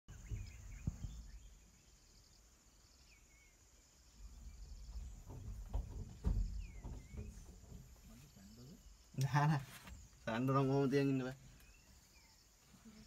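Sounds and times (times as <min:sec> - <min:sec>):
dull low thumps: 0:00.1 - 0:01.6, 0:04.2 - 0:08.4.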